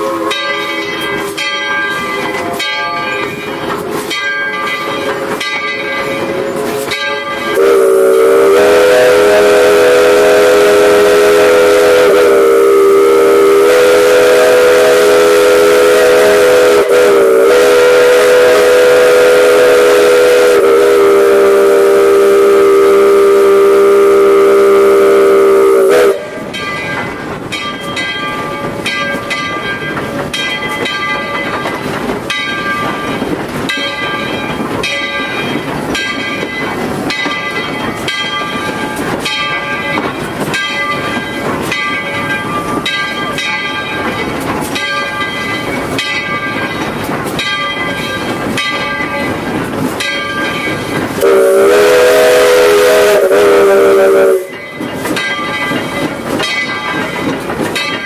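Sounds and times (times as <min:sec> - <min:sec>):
steam whistle blast: 0:00.0 - 0:00.4, 0:07.6 - 0:26.4, 0:51.2 - 0:54.6
steam locomotive running: 0:00.0 - 0:58.0.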